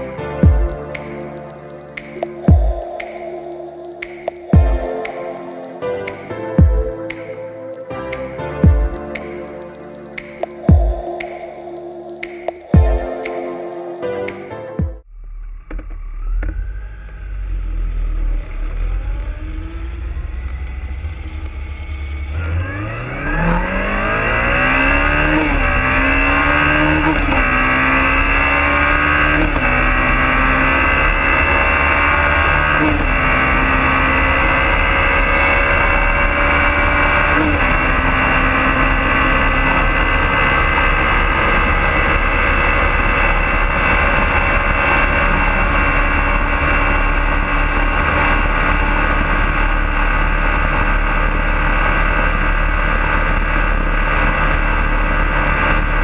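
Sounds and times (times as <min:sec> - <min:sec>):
motorcycle engine accelerating: 0:14.8 - 0:56.0.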